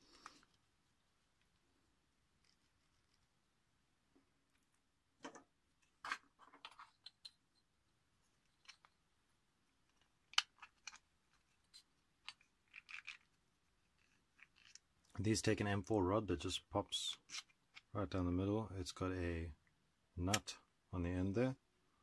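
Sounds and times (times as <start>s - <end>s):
plastic parts clicking together: 9.8s - 13.4s.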